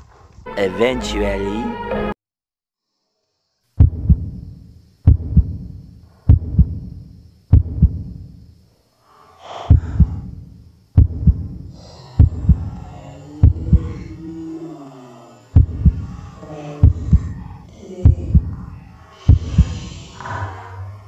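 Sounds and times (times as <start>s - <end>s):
heartbeat thumps: 3.8s - 8.5s, 9.7s - 12.8s, 13.4s - 14.1s, 15.6s - 16.2s, 16.8s - 20.0s.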